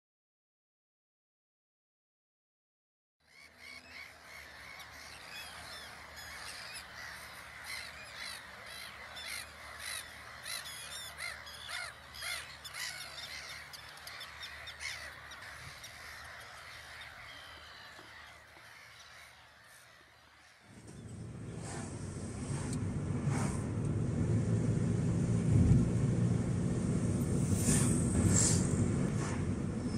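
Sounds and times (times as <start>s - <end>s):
gulls calling: 3.2s - 21.8s.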